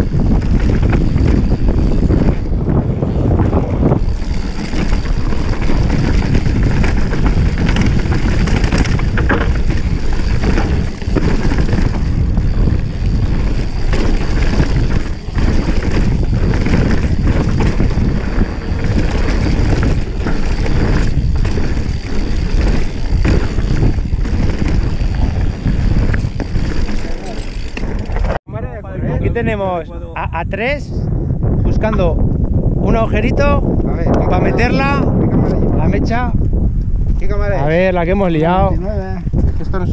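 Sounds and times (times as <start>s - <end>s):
bike rattling over bumps: 0.0s - 28.4s
wind buffeting microphone: 0.0s - 39.9s.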